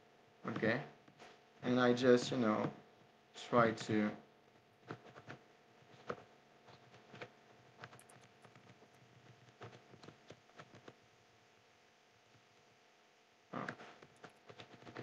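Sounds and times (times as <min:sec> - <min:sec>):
faint keyboard keystrokes: 0:06.0 - 0:11.0, 0:13.7 - 0:15.0.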